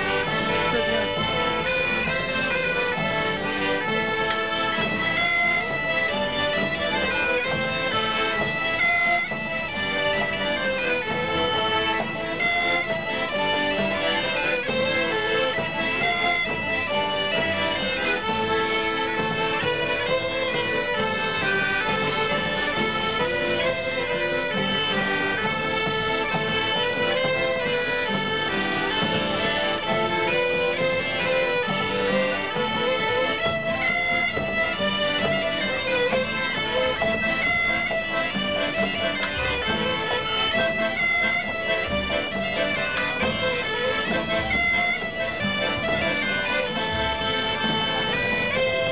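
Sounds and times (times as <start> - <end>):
bagpipe: 0.0 - 48.9
button accordions: 0.0 - 48.9
fiddle: 0.0 - 48.9
guitar: 0.0 - 48.9.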